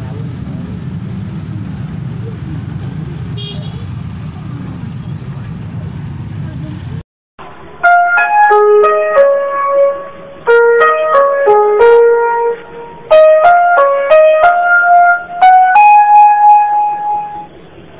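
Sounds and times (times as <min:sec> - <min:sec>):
simple keyboard melody: 0:07.7 - 0:17.6.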